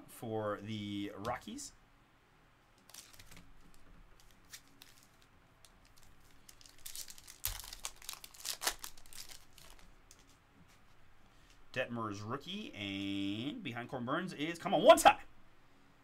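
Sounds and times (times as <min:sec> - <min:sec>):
foil wrapper crinkling and tearing: 0:02.8 - 0:10.4.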